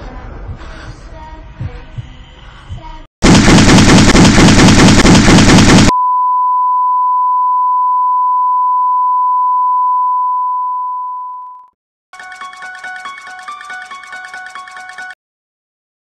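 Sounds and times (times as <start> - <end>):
loud pulsing beat: 3.2 - 5.9.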